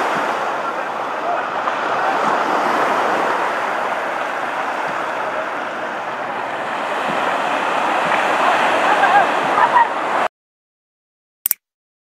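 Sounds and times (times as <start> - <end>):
waves washing up a sandy beach: 0.0 - 10.3.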